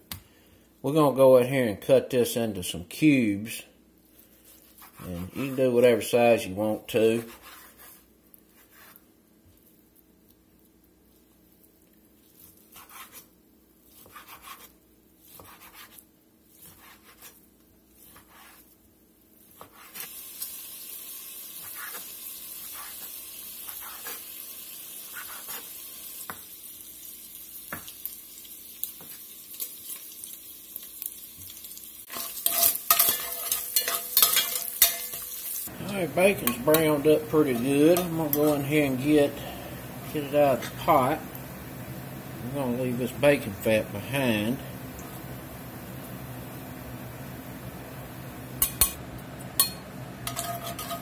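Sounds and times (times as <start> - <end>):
knife cutting on wooden board: 15.3 - 16.0
bacon sizzling in a pot: 17.9 - 51.0
metal spoon scraping a pot: 32.1 - 35.6, 36.2 - 39.5, 49.6 - 51.0
knife tapping: 48.6 - 49.0.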